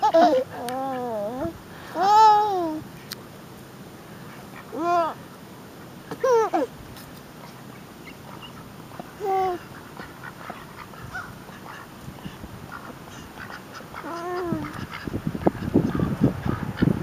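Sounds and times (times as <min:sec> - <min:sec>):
duck calls: 0:12.7 - 0:16.9.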